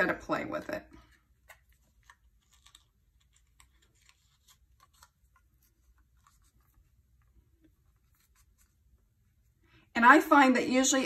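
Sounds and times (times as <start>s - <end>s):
fingers handling ribbon and tag: 1.0s - 6.9s.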